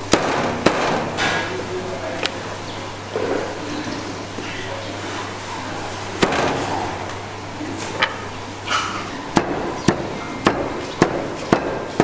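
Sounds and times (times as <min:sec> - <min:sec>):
cleaver chopping on wooden block: 0:09.4 - 0:12.0.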